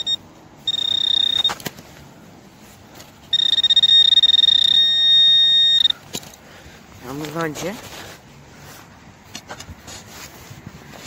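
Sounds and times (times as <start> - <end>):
pulsing high-pitched detector tone: 0.0 - 1.6, 3.3 - 6.0.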